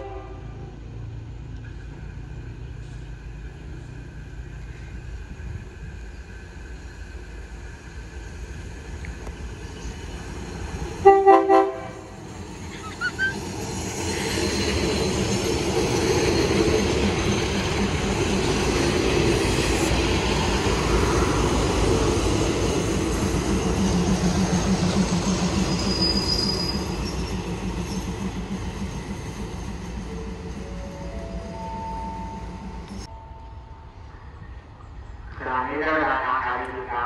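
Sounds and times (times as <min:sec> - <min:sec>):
train horn blast: 0:00.0 - 0:00.7, 0:11.0 - 0:12.2
train rumbling past: 0:00.0 - 0:37.0
wheel squeal: 0:25.2 - 0:28.2.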